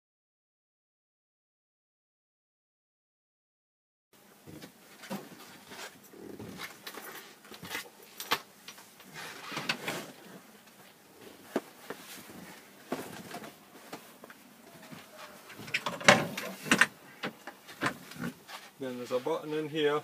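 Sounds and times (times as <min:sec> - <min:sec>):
seat cushion rustling and knocking: 0:11.3 - 0:14.1
storage lid clattering: 0:15.7 - 0:16.9.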